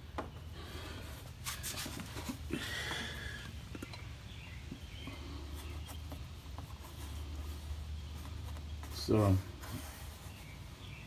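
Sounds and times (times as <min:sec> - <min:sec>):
faint rustling and handling: 0:00.2 - 0:04.0, 0:04.6 - 0:11.0.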